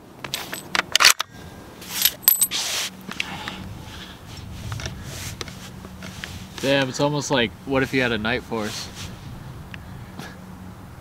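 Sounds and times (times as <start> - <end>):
rifle bolt metallic clicks: 0.4 - 1.3.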